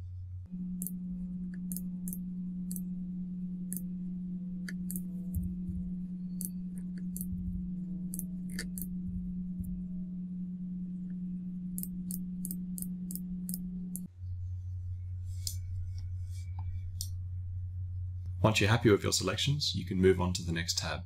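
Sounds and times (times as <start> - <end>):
low hum: 0.0 - 21.0
computer mouse clicking: 4.6 - 5.4, 8.1 - 8.9, 11.8 - 14.1.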